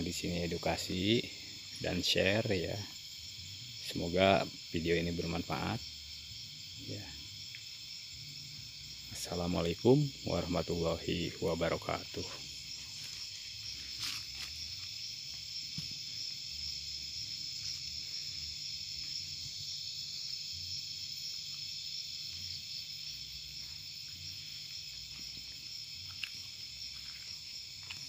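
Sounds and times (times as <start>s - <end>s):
crickets and night insects: 0.0s - 28.0s.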